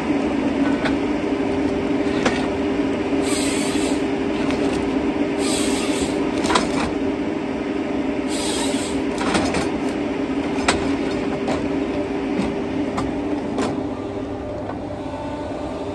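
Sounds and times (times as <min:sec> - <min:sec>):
diesel engine running: 0:00.0 - 0:15.9.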